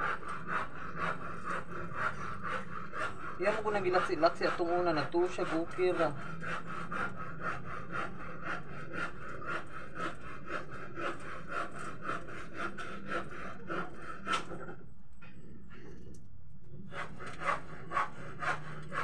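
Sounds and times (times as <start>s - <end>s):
rasping cutting strokes: 0.0s - 14.7s, 16.8s - 19.0s.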